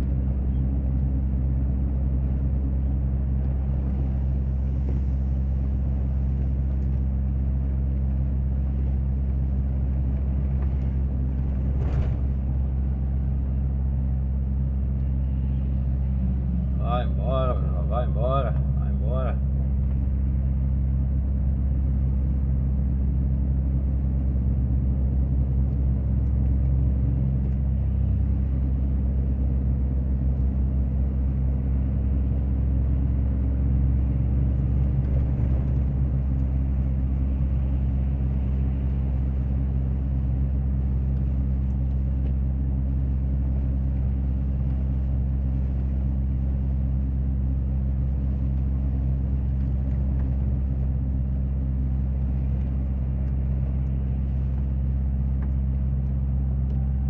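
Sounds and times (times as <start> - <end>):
road noise: 0.0 - 57.0
truck diesel engine droning: 0.0 - 57.0.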